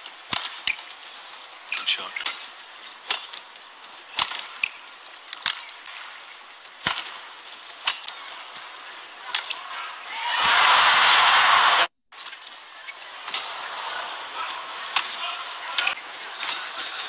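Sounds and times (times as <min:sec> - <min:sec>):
rackets hitting shuttlecock: 0:00.2 - 0:00.9, 0:01.7 - 0:08.6, 0:09.2 - 0:10.7, 0:13.2 - 0:17.0
crowd cheering and applauding: 0:10.1 - 0:11.9.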